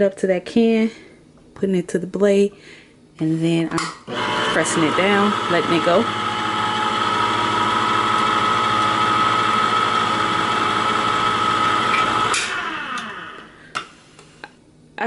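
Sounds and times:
can opener clicking off: 4.1s - 13.5s
electric can opener motor whining: 4.1s - 13.6s.

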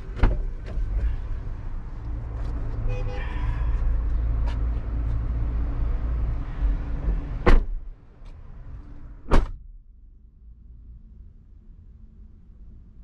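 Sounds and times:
low steady rumble: 3.7s - 13.0s
car doors slamming: 7.4s - 7.9s, 9.2s - 9.6s.

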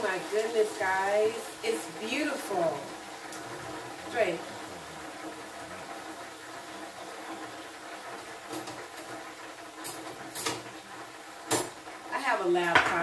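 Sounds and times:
fryer basket clicking on metal: 9.8s - 10.7s, 11.4s - 11.8s.

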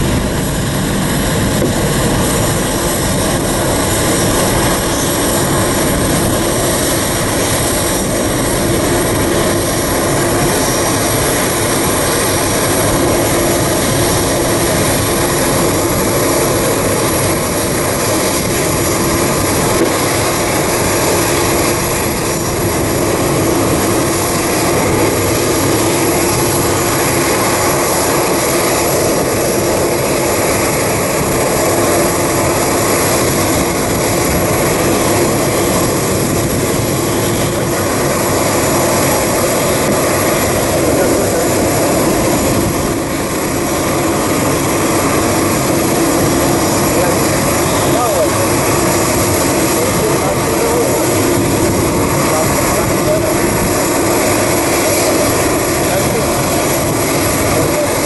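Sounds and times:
jet engine roar: 0.0s - 58.0s.

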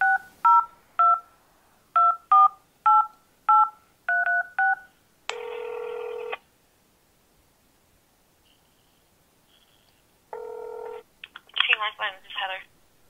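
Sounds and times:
phone keypad dual-tone beeps: 0.0s - 1.2s, 2.0s - 4.8s
steady phone tone: 2.0s - 6.4s, 10.4s - 11.0s.

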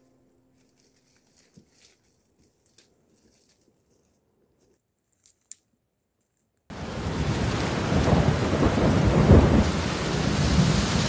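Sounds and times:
heavy rain on plastic tarp: 6.7s - 11.0s.

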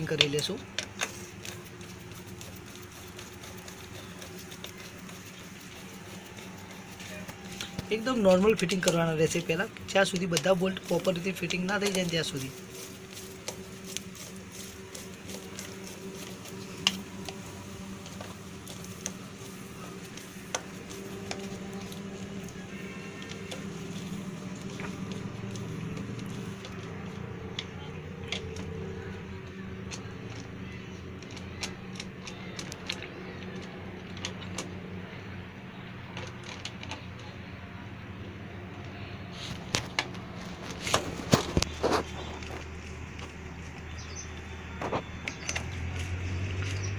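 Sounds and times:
steady low hum: 0.0s - 35.9s.

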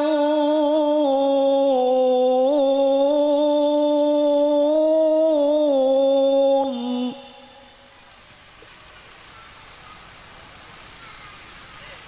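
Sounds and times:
man reciting melodically: 0.0s - 7.9s.

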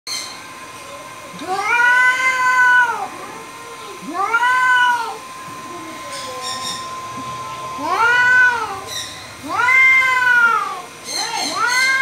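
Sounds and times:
cat yowling: 1.4s - 3.1s, 4.1s - 5.2s, 7.8s - 12.0s.

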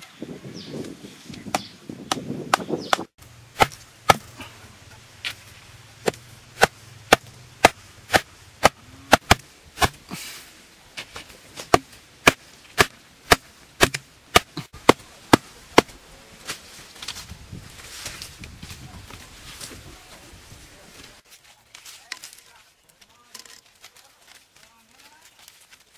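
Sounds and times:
blade chopping wood: 1.5s - 4.3s, 6.0s - 10.0s, 11.6s - 16.0s.

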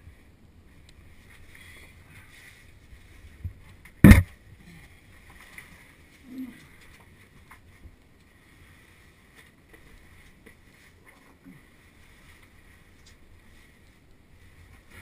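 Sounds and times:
knock against rock: 4.0s - 4.3s.

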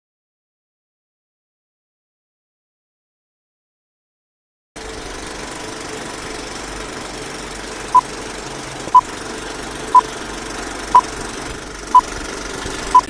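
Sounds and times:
film projector rattle and hiss: 4.8s - 13.0s.

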